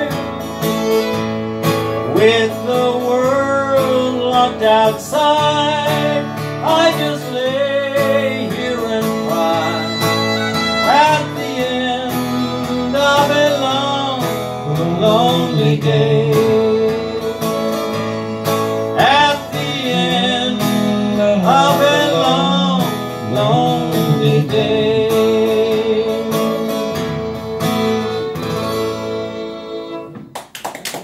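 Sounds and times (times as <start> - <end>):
man singing: 0.0 - 0.4, 2.0 - 18.1, 18.9 - 27.5
acoustic guitar and fiddle: 0.0 - 30.3
people clapping: 30.1 - 31.0.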